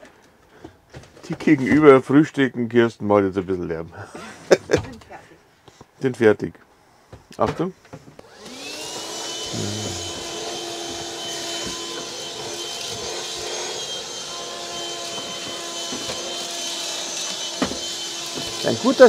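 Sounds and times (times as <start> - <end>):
vacuum cleaner motor whine: 8.2 - 19.0.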